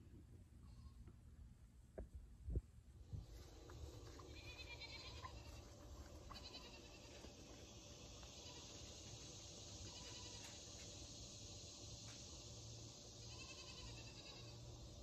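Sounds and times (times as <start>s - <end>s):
distant high-pitched animal calls: 4.3s - 7.3s, 8.3s - 9.2s, 9.8s - 10.7s, 13.2s - 14.8s.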